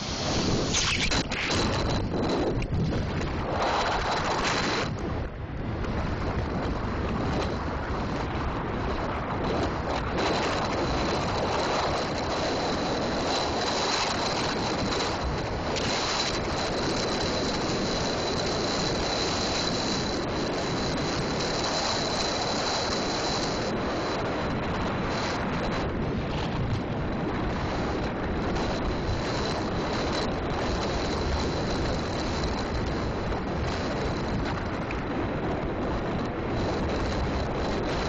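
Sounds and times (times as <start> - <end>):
wind rushing over microphone: 0.0 - 38.0.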